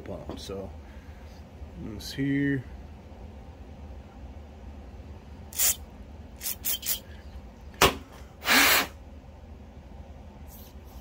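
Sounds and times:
aerosol spray hissing: 5.6s - 5.8s, 6.4s - 7.0s.

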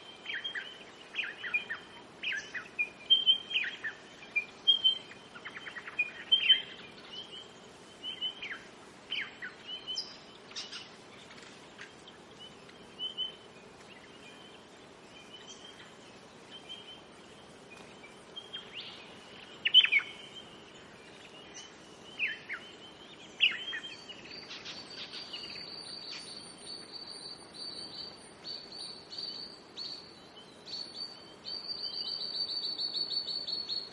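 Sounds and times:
birds whistling: 0.2s - 7.4s, 18.4s - 20.5s, 21.6s - 30.1s.

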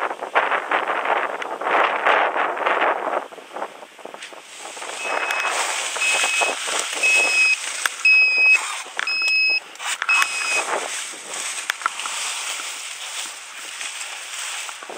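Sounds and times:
wind buffeting microphone: 0.0s - 14.9s
electronic beeps: 5.0s - 10.7s.

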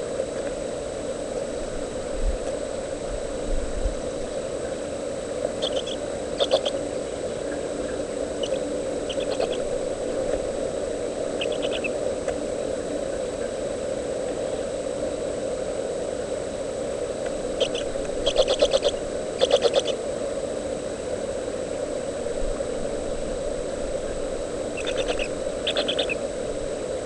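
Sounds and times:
low steady hum: 0.0s - 27.0s
owlets squeaky chitters: 5.6s - 6.8s, 8.4s - 9.7s, 11.4s - 11.9s, 17.6s - 20.0s, 24.7s - 26.2s.

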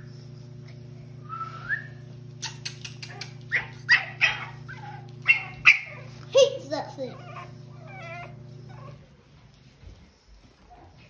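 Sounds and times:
puppy whining: 0.0s - 11.0s
puppy yapping: 2.4s - 9.0s.

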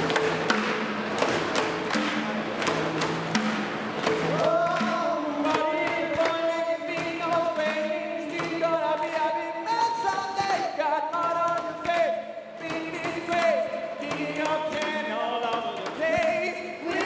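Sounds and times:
drumming on plastic water jug: 0.0s - 17.0s
group singing in harmony: 4.2s - 9.2s.

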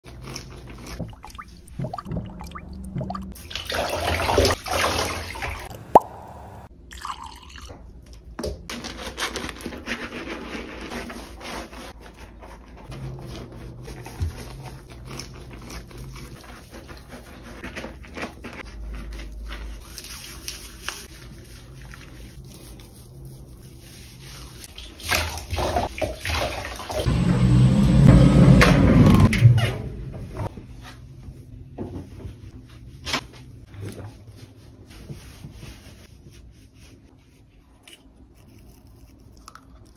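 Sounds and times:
water dripping and splashing in a bathtub: 0.2s - 8.2s, 19.4s - 27.1s
water pouring: 0.9s - 7.7s.

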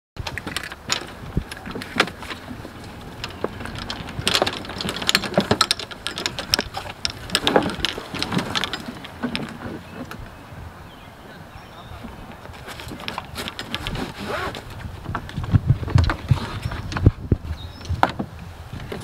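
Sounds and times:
golf clubs clattering in bag: 0.2s - 9.8s, 12.5s - 15.2s.

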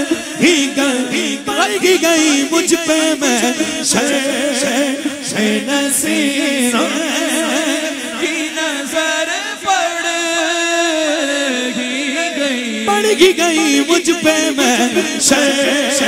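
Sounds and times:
group of voices singing: 0.0s - 10.0s.

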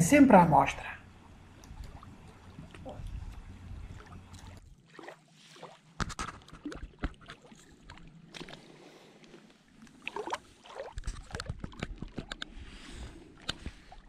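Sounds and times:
water dripping: 1.0s - 5.2s
water splashing against rock: 1.6s - 12.6s.

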